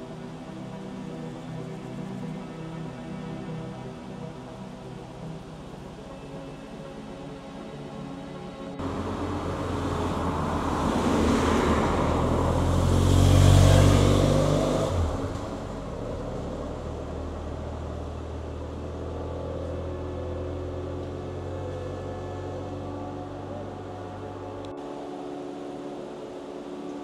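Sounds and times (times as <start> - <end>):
car driving past: 8.8 - 24.8.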